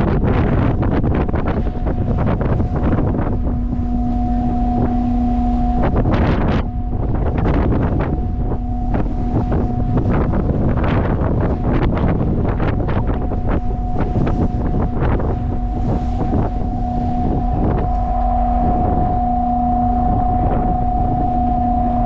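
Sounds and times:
strong wind buffeting microphone: 0.0s - 22.0s
low whistle-like tone: 0.1s - 22.0s.

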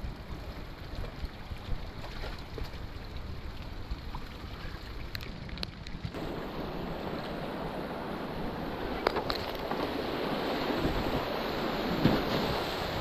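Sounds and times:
creek water flowing: 0.0s - 13.0s
whitewater rushing: 6.2s - 13.0s.

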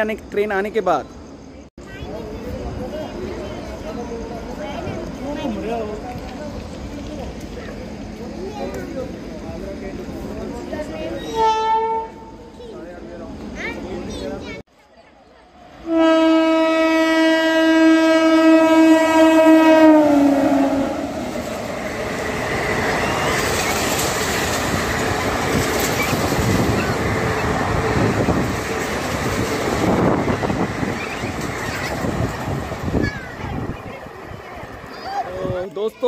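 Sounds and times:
train coaches rumbling past: 0.0s - 36.0s
train horn: 11.3s - 12.5s, 15.8s - 21.4s.

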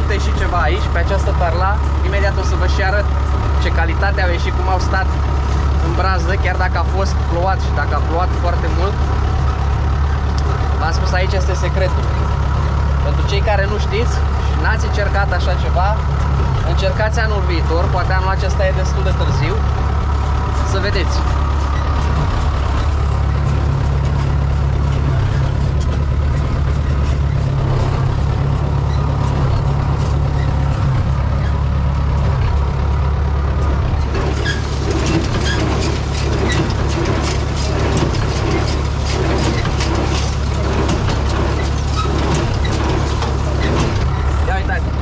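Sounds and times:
hay baler knocking: 0.0s - 45.0s
tractor engine running: 0.0s - 45.0s.

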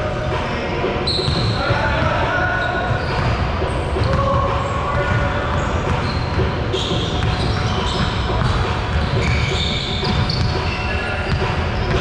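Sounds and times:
players' voices: 0.0s - 12.0s
basketballs bouncing on hardwood: 4.0s - 10.6s.

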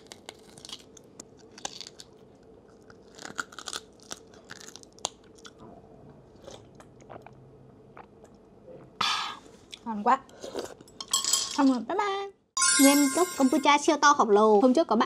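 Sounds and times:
crunchy chewing and biting: 0.0s - 5.6s.

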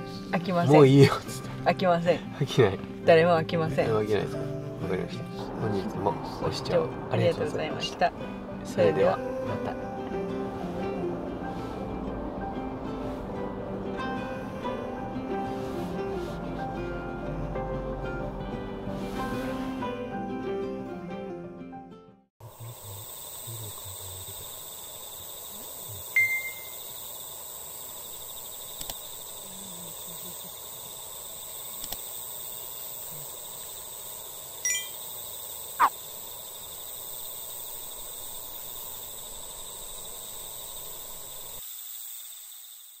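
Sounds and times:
steady hiss: 22.4s - 43.0s
faint high tones: 26.1s - 26.9s, 34.7s - 35.0s
falling whistle: 26.1s - 26.9s
short bright tones: 34.7s - 35.0s.

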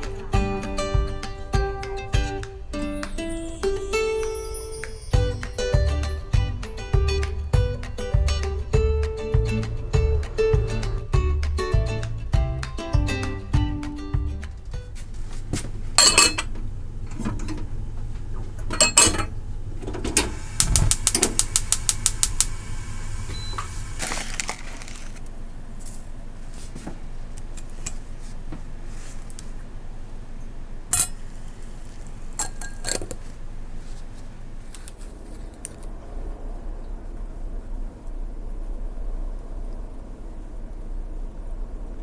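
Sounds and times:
clinks of teapot and glass cup: 16.0s - 16.5s, 18.7s - 19.3s, 32.4s - 33.2s.

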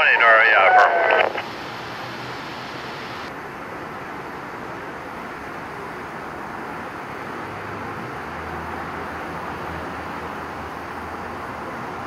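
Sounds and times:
radio static rushing noise: 0.0s - 3.3s.

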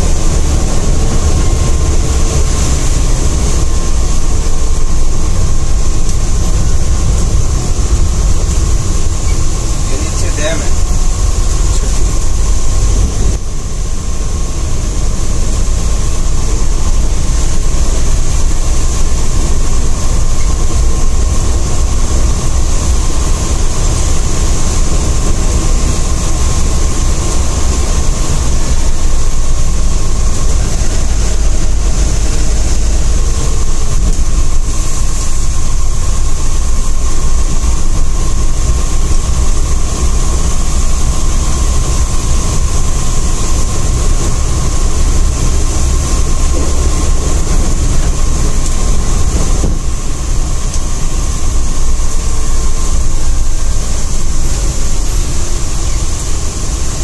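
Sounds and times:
bus engine and tyres droning: 0.0s - 57.0s
faint steady whine: 0.0s - 57.0s.

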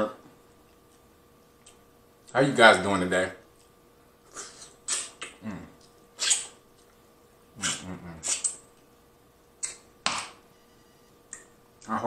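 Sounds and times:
man humming with enjoyment: 5.4s - 5.8s, 7.6s - 8.4s.

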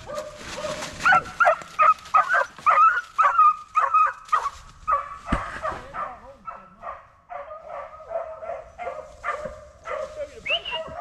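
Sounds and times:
dog yelping: 0.0s - 6.7s.

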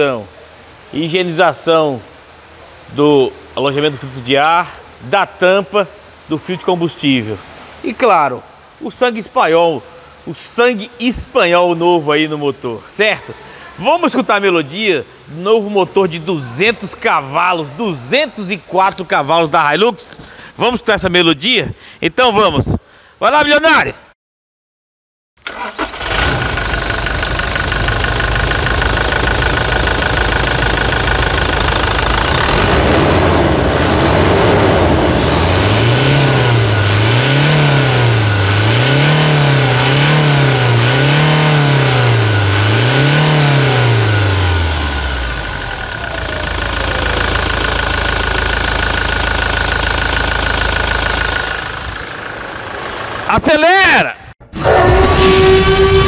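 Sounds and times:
diesel engine revving: 25.5s - 53.4s
high whine: 54.5s - 56.0s.

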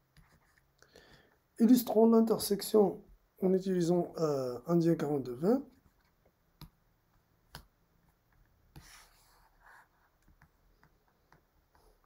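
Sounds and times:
faint pen scratching: 8.7s - 12.0s.

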